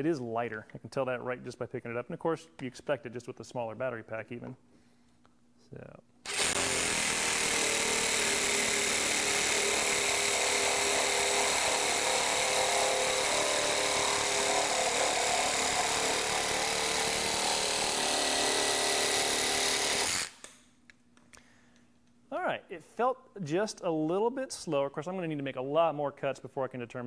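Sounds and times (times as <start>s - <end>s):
reciprocating saw cutting plastic pipe: 6.3s - 20.6s.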